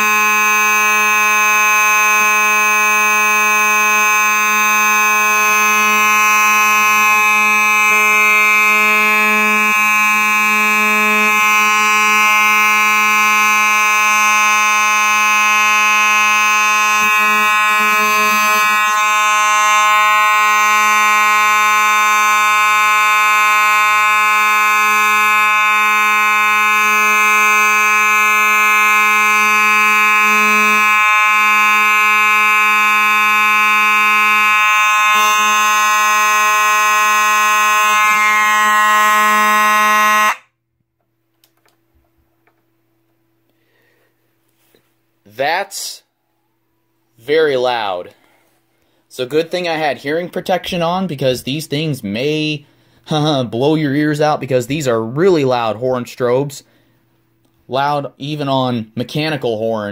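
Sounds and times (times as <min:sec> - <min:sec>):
fire alarm horn buzzing: 0:00.0 - 0:40.6, 0:47.2 - 0:57.0.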